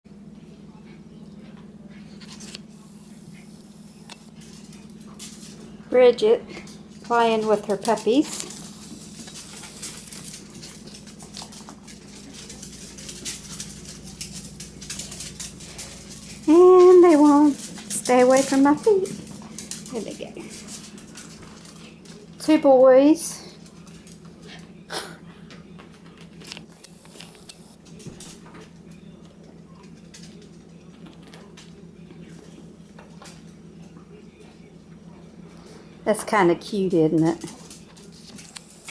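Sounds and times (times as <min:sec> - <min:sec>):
steady low hum: 0:00.1 - 0:38.9
dog claws clicking on tile: 0:07.7 - 0:22.2.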